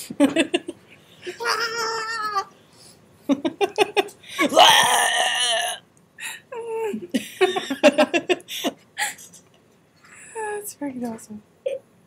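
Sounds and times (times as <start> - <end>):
women laughing: 6.7 - 8.5.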